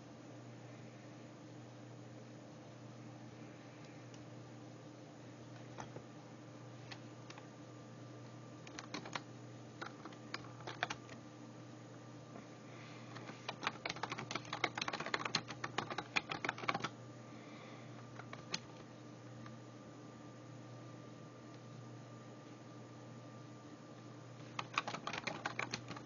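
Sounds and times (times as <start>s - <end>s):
faint steady hum: 0.0s - 26.0s
typing on a keyboard: 8.6s - 11.2s, 13.2s - 16.9s, 18.2s - 18.9s, 24.4s - 26.0s.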